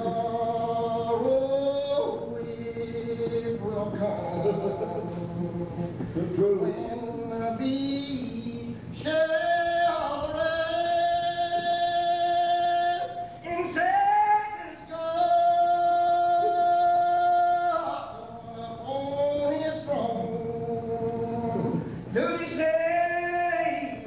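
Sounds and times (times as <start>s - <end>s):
congregation singing a hymn: 0.0s - 8.3s.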